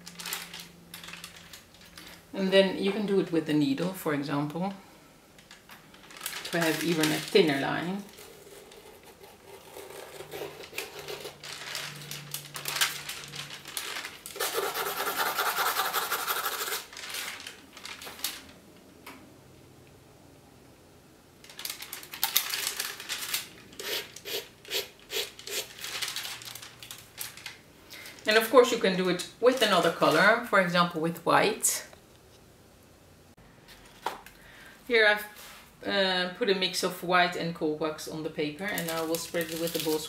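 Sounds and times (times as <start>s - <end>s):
paper rustling: 5.5s - 18.6s, 21.5s - 24.2s, 25.3s - 28.4s, 38.7s - 40.0s
needle scratching paper: 8.2s - 11.4s, 14.4s - 16.9s.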